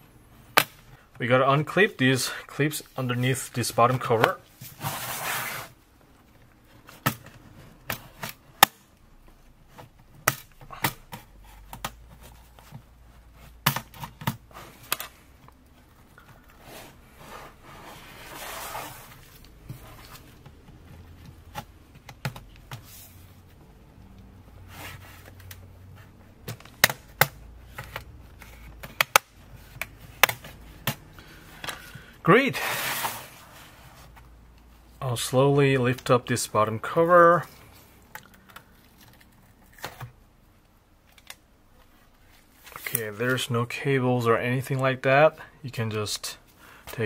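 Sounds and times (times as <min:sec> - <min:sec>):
handling and rubbing of laptop case: 0:03.2 - 0:05.9, 0:11.2 - 0:30.8, 0:32.3 - 0:34.3.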